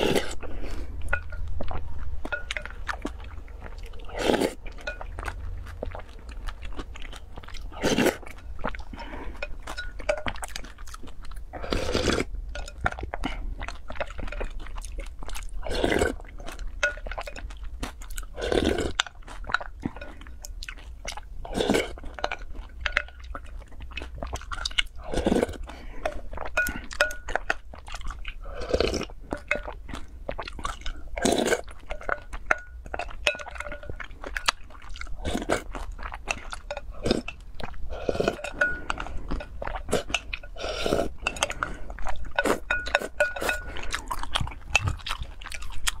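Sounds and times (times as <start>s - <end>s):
chewing and crunching food: 0.0s - 46.0s.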